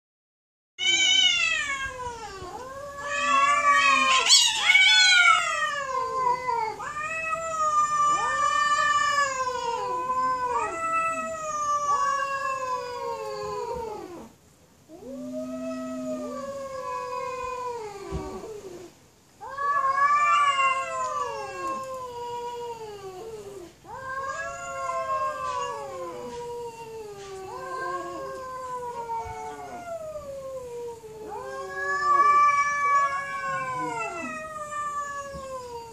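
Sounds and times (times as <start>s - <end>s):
cats yowling: 0.8s - 35.9s.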